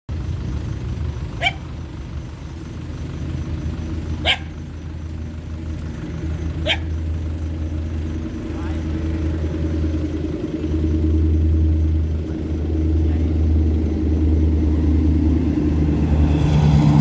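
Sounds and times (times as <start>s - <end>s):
steady low rumble: 0.1s - 17.0s
dog barking: 1.4s - 1.7s, 4.2s - 4.6s, 6.6s - 7.0s.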